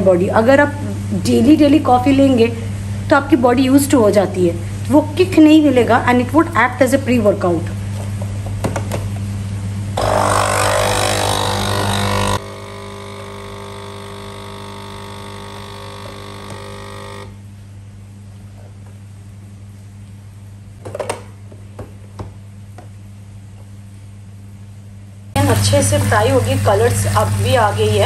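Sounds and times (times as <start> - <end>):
espresso machine pump buzzing: 10.0 - 17.4, 25.4 - 28.0.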